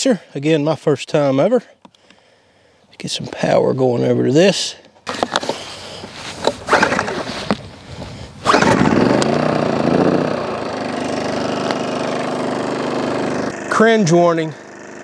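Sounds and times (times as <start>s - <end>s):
starter cord rasps: 5.1s - 7.6s, 8.4s - 15.0s
generator engine running: 8.4s - 15.0s.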